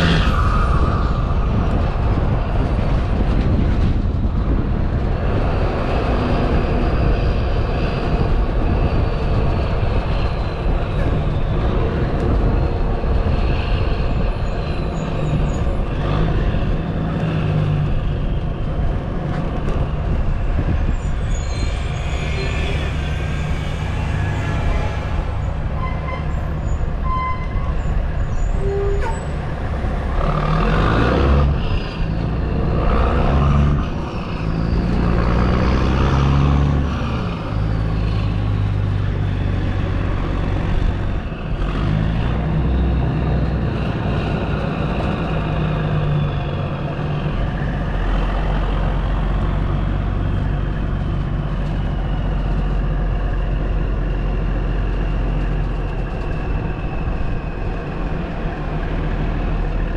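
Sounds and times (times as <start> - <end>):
diesel truck engine accelerating: 27.8 - 59.9.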